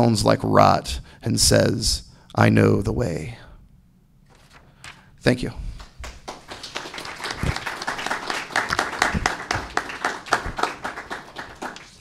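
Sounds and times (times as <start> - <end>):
audience applauding: 5.8 - 12.0.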